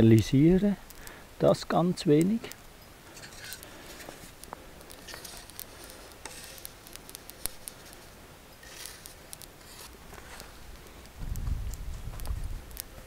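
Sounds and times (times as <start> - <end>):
sharp ticks of caramelizing sugar: 0.0 - 13.0
wooden boards scraping hot steel plate: 3.0 - 10.8.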